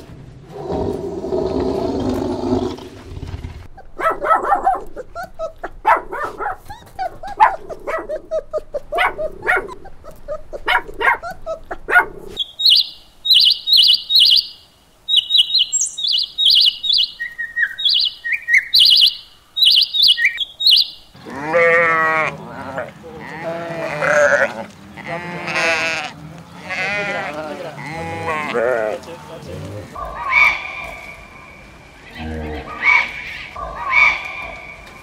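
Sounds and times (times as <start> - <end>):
small birds chirping: 3.2 - 21.3
young dogs barking and yipping: 3.6 - 12.5, 30.0 - 31.7, 32.6 - 35.0
sheep bleating: 21.2 - 29.7.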